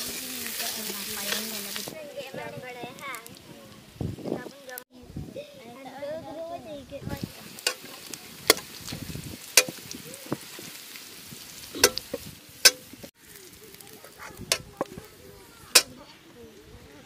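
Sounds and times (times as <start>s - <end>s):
oil sizzling in a wok: 0.0s - 4.8s, 6.9s - 16.8s
ladle scraping and clinking pan: 11.8s - 12.9s.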